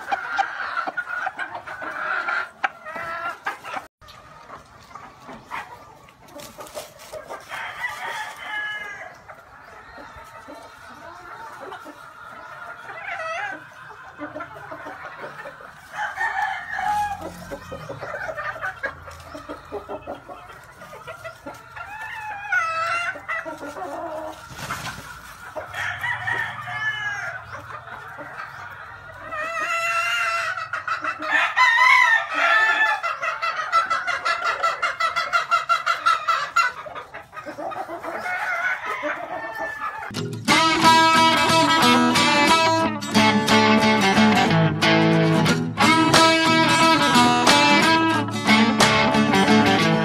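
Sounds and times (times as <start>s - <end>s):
chickens clucking: 0.0s - 50.0s
rooster crowing: 7.5s - 9.1s, 15.9s - 17.6s, 25.7s - 27.5s, 31.3s - 33.0s.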